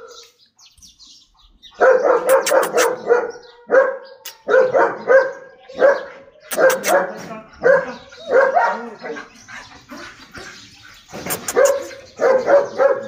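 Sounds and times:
dog barking: 0:00.0 - 0:00.3, 0:01.8 - 0:09.2, 0:11.3 - 0:13.0.

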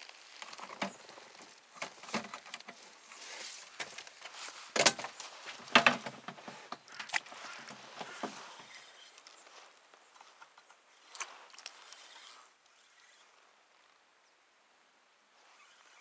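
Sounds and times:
knocks and rustles in a boat: 0:00.5 - 0:09.0.

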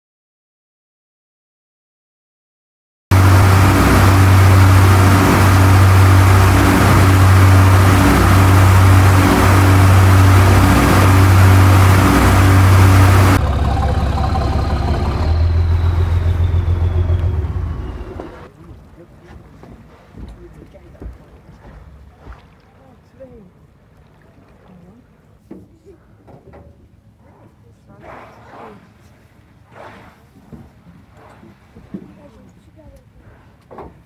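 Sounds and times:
water rushing: 0:03.1 - 0:23.2
boat engine humming: 0:03.1 - 0:34.0
wind: 0:03.1 - 0:34.0.

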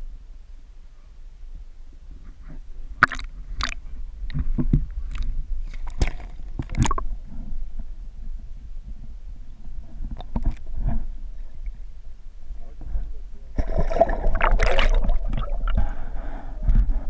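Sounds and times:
water sloshing and splashing: 0:03.0 - 0:03.8, 0:05.1 - 0:07.0, 0:13.6 - 0:15.9.

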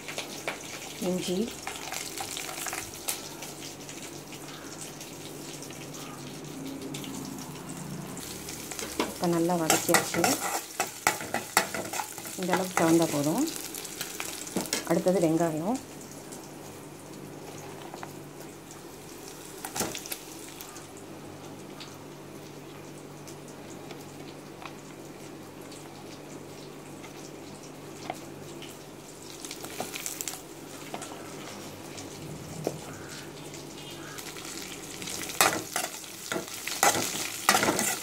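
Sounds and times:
onions sizzling in hot oil: 0:00.0 - 0:38.0
metal spoon scraping and stirring: 0:09.6 - 0:12.9.

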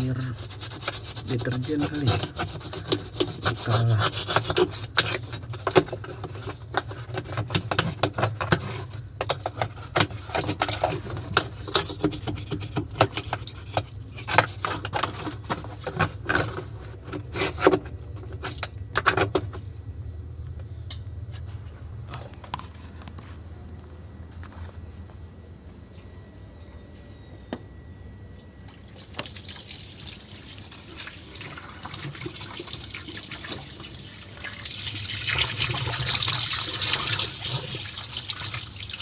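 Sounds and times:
stiff brush scrubbing: 0:00.0 - 0:18.6.

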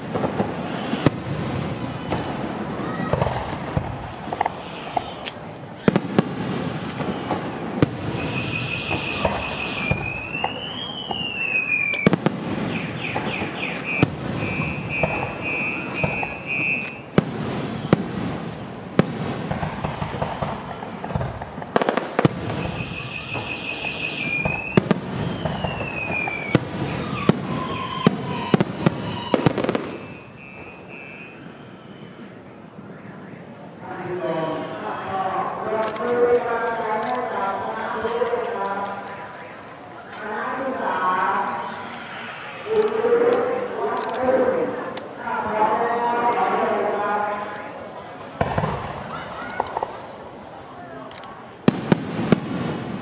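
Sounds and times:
fireworks bursting: 0:00.0 - 0:53.0
electronic alarm beeping and whooping: 0:08.1 - 0:17.1, 0:22.5 - 0:24.8, 0:25.4 - 0:33.5.

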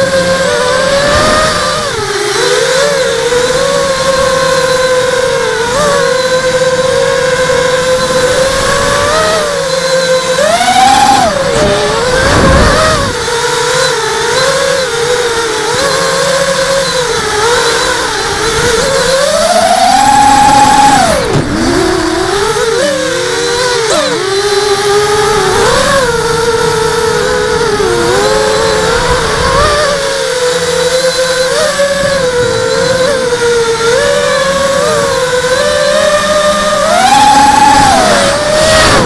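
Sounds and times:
drone motors whining: 0:00.0 - 0:39.0
wind rumble on microphone: 0:11.0 - 0:13.3.

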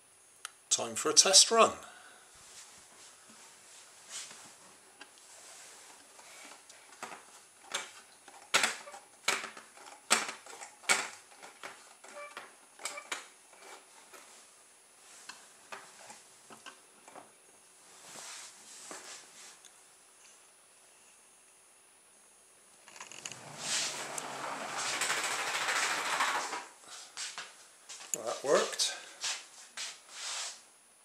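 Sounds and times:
plastic and vinyl wheels clicking: 0:22.8 - 0:26.8.

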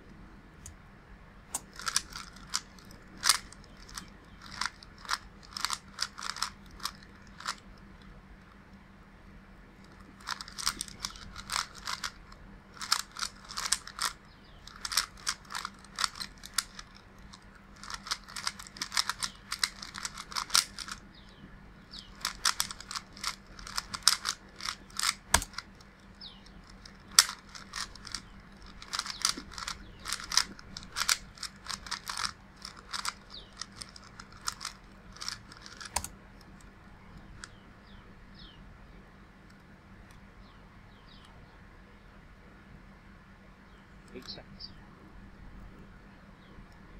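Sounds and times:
puzzle cube clicking: 0:01.5 - 0:08.6, 0:09.8 - 0:21.0, 0:21.9 - 0:37.6.

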